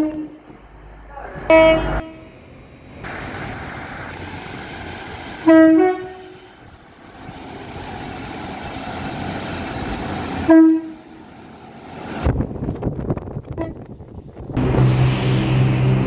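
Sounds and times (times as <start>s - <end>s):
train horn blasts: 0.0s - 0.4s, 1.5s - 2.3s, 5.4s - 6.5s, 10.5s - 11.0s
rumble of approaching train: 0.0s - 16.0s.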